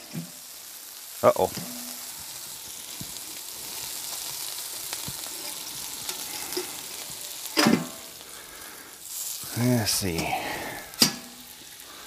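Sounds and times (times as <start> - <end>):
food sizzling on griddle: 0.0 - 12.0.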